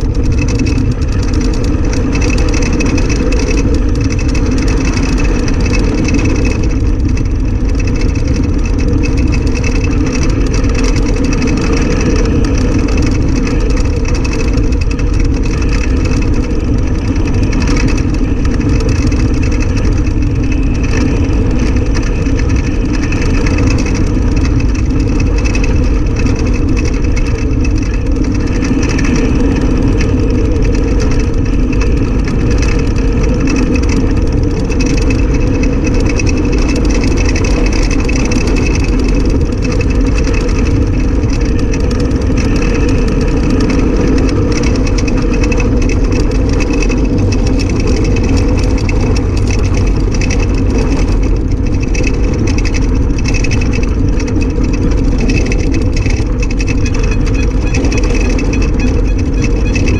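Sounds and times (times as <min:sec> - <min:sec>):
cart vibration: 0:00.0 - 0:59.9
wheels rumbling on asphalt: 0:00.0 - 0:59.9.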